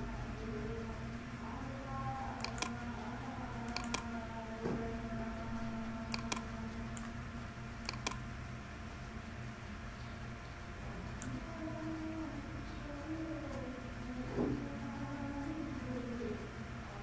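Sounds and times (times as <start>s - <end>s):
steady low hum: 0.0s - 17.0s
computer mouse clicks: 2.4s - 2.8s, 3.7s - 4.1s, 6.1s - 7.1s, 7.8s - 8.2s.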